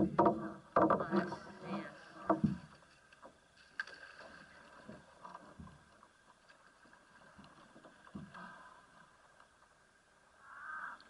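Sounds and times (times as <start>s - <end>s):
small water splashes: 1.0s - 9.8s.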